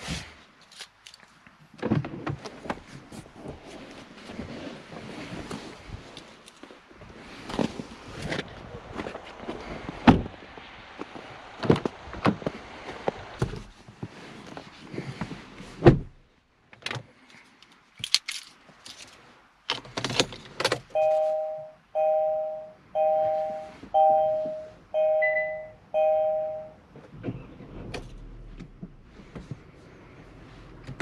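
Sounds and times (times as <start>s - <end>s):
two-note warning chime: 21.0s - 26.8s.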